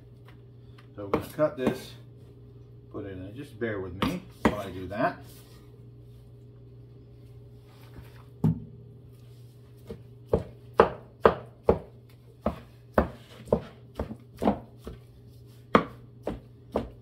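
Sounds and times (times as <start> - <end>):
knife chopping on cutting board: 1.1 - 2.0, 4.0 - 4.8, 9.8 - 17.0.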